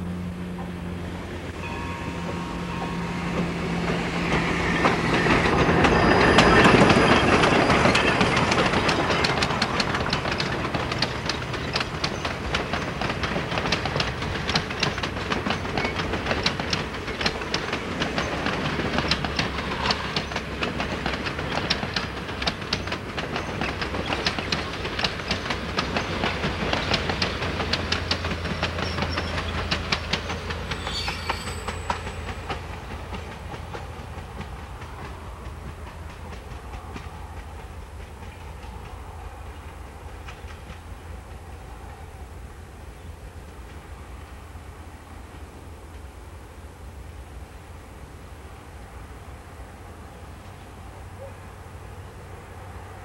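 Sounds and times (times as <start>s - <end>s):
steam locomotive passing: 0.0s - 53.0s
train wheels clicking over rail joints: 0.5s - 42.3s.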